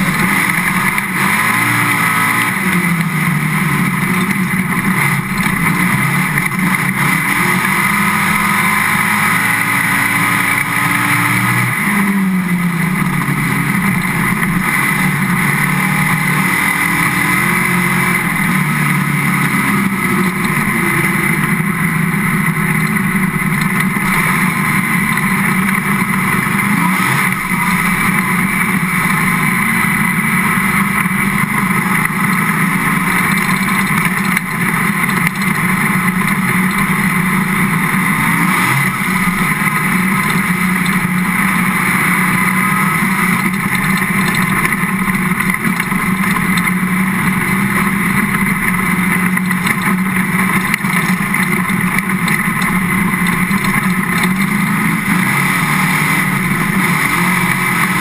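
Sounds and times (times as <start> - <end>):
race car engine droning: 0.0 - 58.0.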